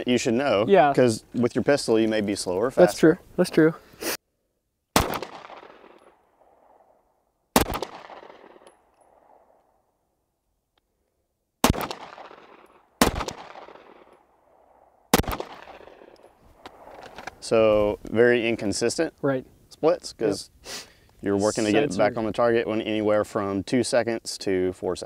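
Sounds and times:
gunshots with echo: 5.0 - 6.8, 7.5 - 9.5, 11.6 - 16.2.

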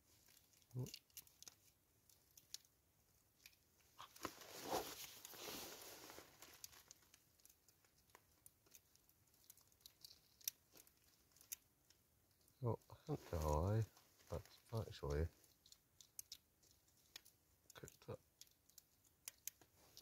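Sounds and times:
eggshell crackling and rustling: 0.0 - 20.0
small clicks: 6.4 - 12.6, 14.6 - 20.0.

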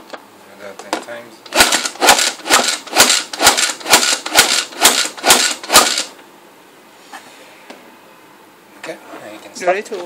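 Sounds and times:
food chopper clacking: 1.5 - 6.2.

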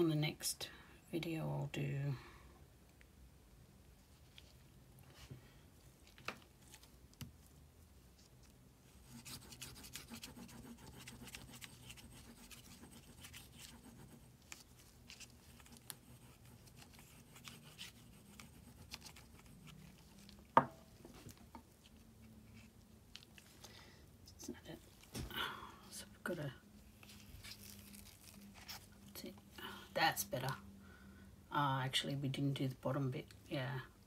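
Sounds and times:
soft scratchy rubbing on paper: 6.6 - 20.5, 21.1 - 23.6, 26.8 - 29.6.

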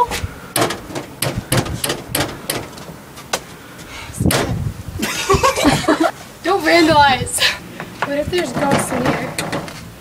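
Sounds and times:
knocks and clatters at a door: 8.5 - 9.8.

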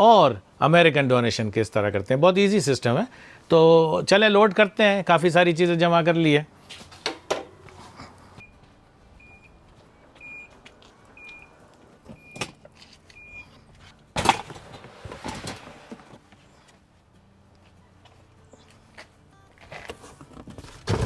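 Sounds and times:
car warning chime beeps: 9.2 - 9.6, 10.2 - 10.6, 11.2 - 12.5, 13.2 - 13.6.

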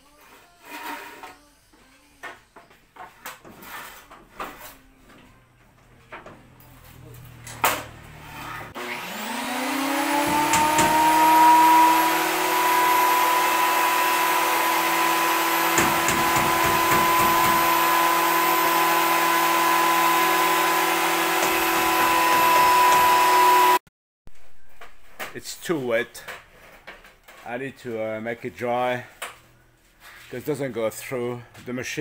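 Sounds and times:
electric planer motor whining: 8.7 - 23.8.

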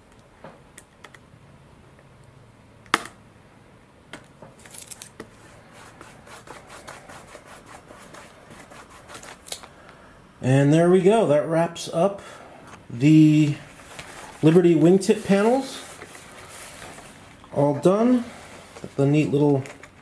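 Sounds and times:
fingertips rubbing tape: 5.2 - 9.7.

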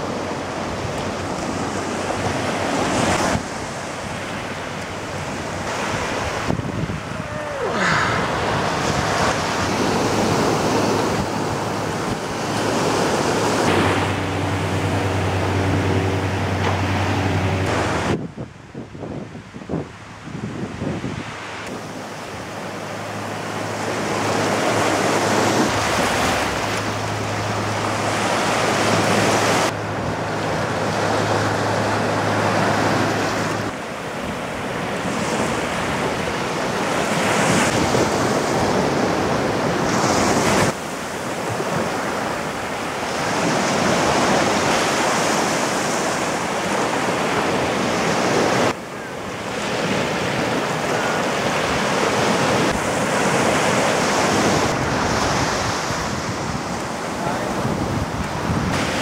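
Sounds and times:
wind on microphone: 0.0 - 42.5, 43.1 - 59.0
ocean surf breaking on beach: 0.0 - 59.0.

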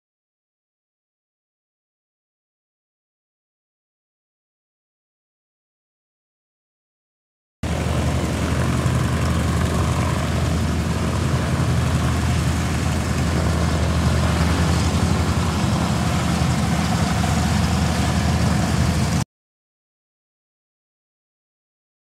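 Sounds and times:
twin propeller engines droning: 7.6 - 19.2.

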